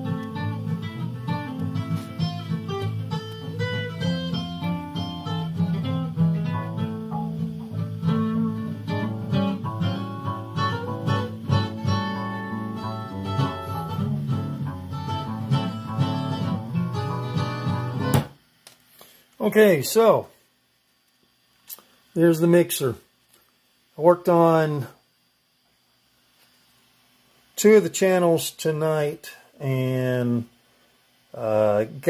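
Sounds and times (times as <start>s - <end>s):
plucked guitar music: 0.0s - 18.3s.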